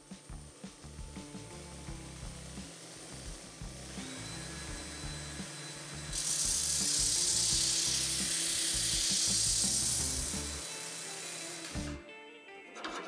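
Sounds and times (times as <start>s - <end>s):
belt grinder running: 0.0s - 12.0s
steel rod grinding on belt: 2.4s - 11.9s.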